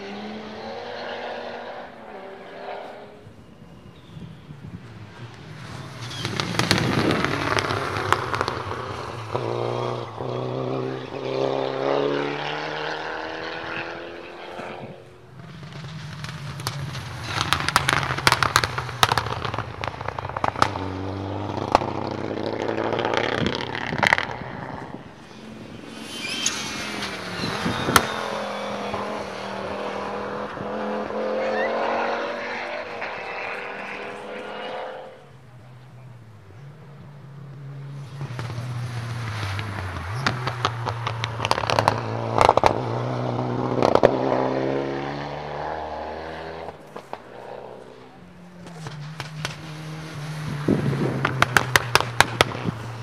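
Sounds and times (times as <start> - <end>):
rally car engines revving past: 0.0 - 53.0
exhaust cracks and pops: 6.0 - 8.9, 15.5 - 20.9, 39.2 - 42.8, 48.6 - 53.0.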